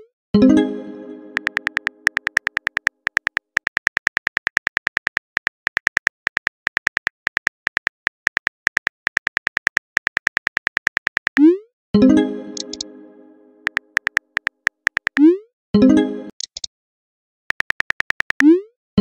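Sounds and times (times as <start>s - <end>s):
phone keyboard typing ticks: 1.3s - 11.5s, 12.6s - 12.9s, 13.6s - 15.3s, 16.3s - 16.7s, 17.5s - 18.6s.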